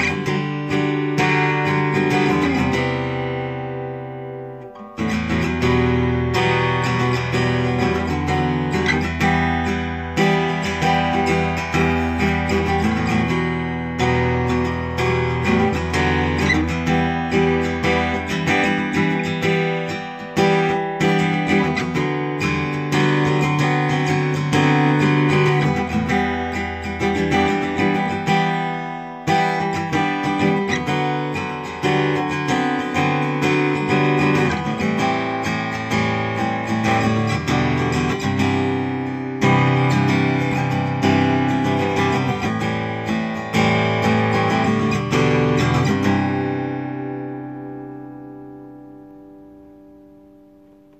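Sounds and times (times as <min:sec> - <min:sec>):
acoustic guitar strumming: 0:00.0 - 0:50.9.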